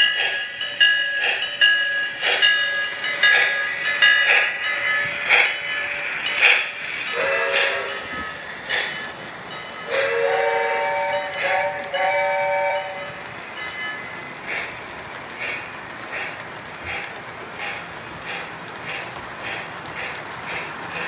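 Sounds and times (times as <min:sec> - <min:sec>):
model trains running on track: 0:00.0 - 0:21.0
model train chord whistle: 0:07.1 - 0:08.1, 0:09.9 - 0:13.2.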